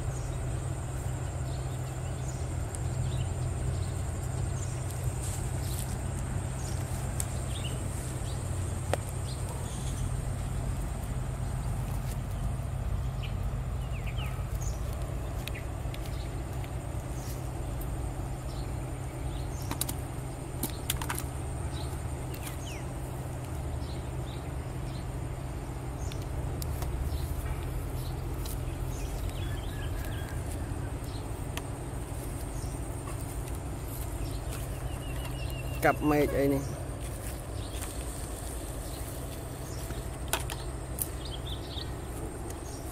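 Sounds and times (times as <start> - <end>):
steady low rumble: 0.0 - 42.9
faint bird chirps: 9.2 - 10.6, 33.8 - 36.9.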